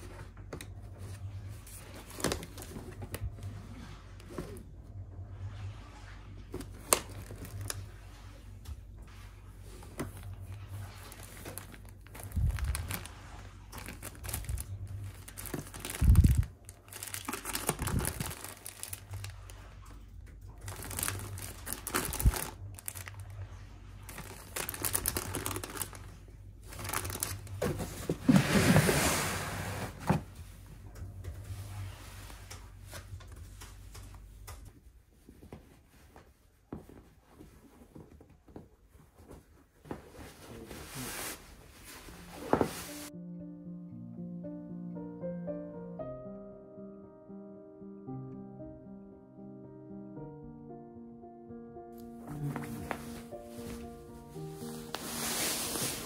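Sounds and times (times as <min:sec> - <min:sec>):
plastic packs crinkling: 0:06.6 - 0:07.9, 0:09.8 - 0:19.7, 0:20.4 - 0:28.2.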